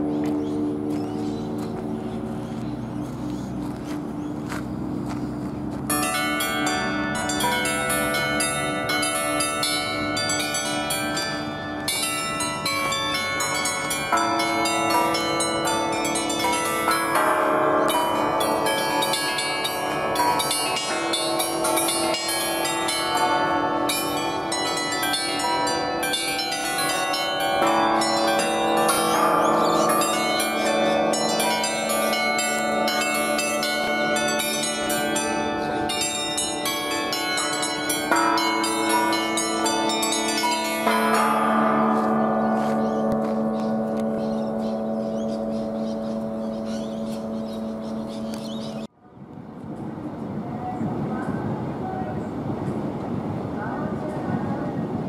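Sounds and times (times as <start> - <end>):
struck bells playing a tune: 0.0 - 48.9.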